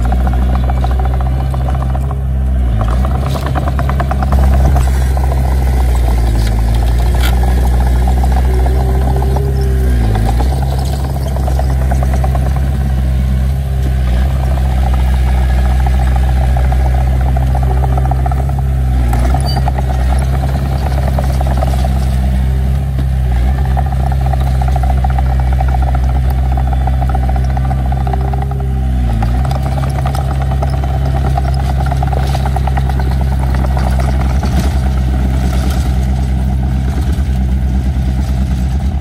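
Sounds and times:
bulldozer diesel engine running: 0:00.0 - 0:39.0
tracks rattling: 0:00.0 - 0:39.0.

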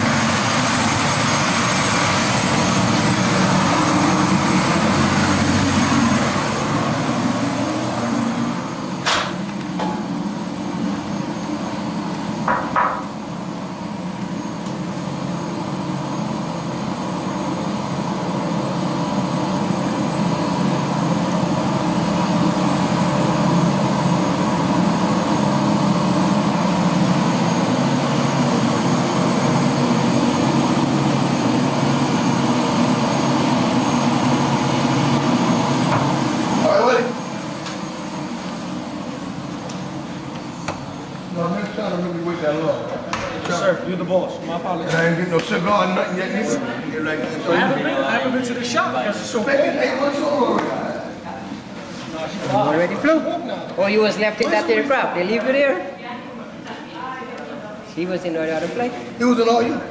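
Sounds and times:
helicopter engine and rotor drone: 0:00.0 - 0:41.5.

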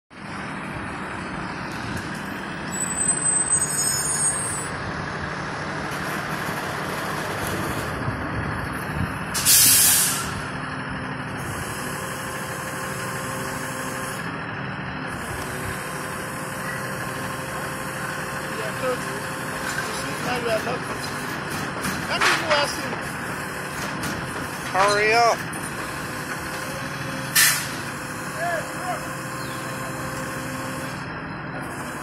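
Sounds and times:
diesel truck engine running: 0:00.1 - 0:32.0
wavering high squeal: 0:02.7 - 0:04.7
air brake hiss: 0:09.4 - 0:10.4, 0:27.3 - 0:27.8.

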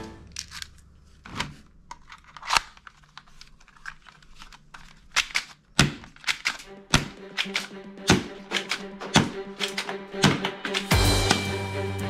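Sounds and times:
plastic toy guns clicking: 0:01.9 - 0:10.9.

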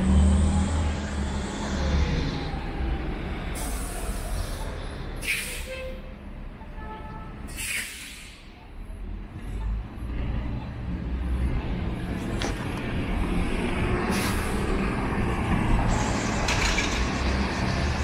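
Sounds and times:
city traffic rumbling: 0:00.0 - 0:18.0
short air hisses: 0:05.2 - 0:05.7, 0:07.5 - 0:08.4.

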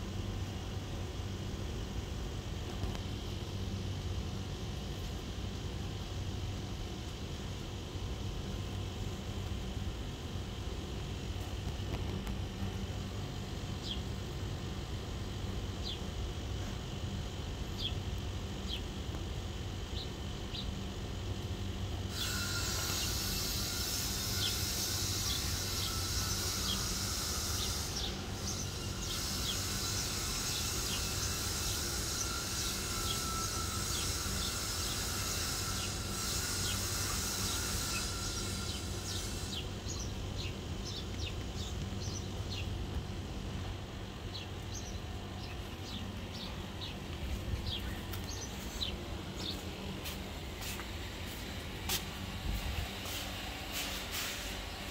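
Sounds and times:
small birds chirping: 0:17.6 - 0:19.0, 0:33.8 - 0:42.8, 0:44.1 - 0:50.7
high insect buzz: 0:22.0 - 0:42.6.

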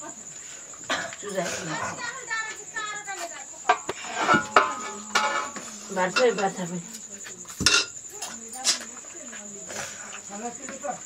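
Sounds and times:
crickets trilling: 0:00.0 - 0:11.0
steel dishes clinking: 0:03.7 - 0:06.6, 0:07.6 - 0:08.4.

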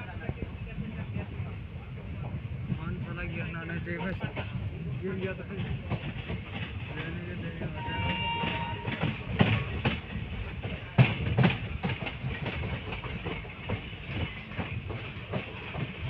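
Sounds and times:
train rumbling: 0:00.0 - 0:16.0
wheels clacking over rail joints: 0:03.3 - 0:16.0.

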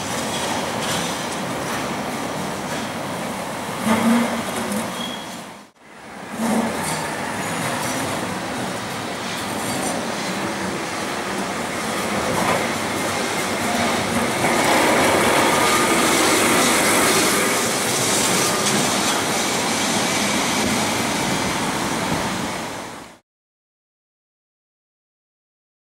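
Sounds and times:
electric tram running past: 0:00.0 - 0:23.2
tram wheels squealing: 0:03.8 - 0:08.3, 0:09.2 - 0:20.9.

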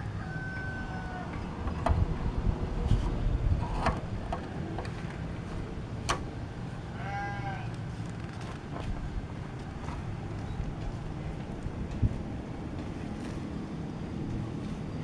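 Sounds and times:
low outdoor rumble: 0:00.0 - 0:15.0
farm animal bleating: 0:06.9 - 0:07.8.

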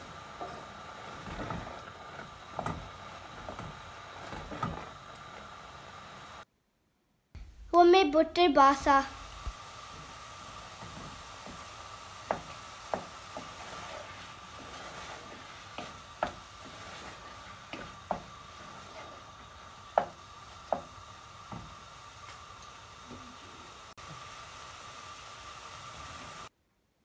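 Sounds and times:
faint sizzle: 0:00.0 - 0:06.5, 0:07.6 - 0:26.5
wooden spoon knocking pan: 0:10.8 - 0:14.0, 0:14.6 - 0:18.9, 0:19.9 - 0:21.8.

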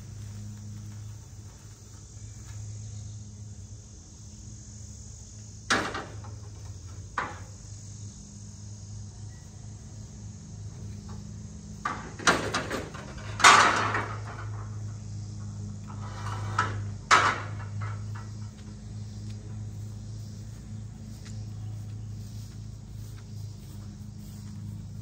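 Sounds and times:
insects chirring: 0:00.0 - 0:25.0
steady low hum: 0:00.0 - 0:25.0
scrap metal knocking and clattering: 0:11.8 - 0:15.0, 0:15.9 - 0:18.6.

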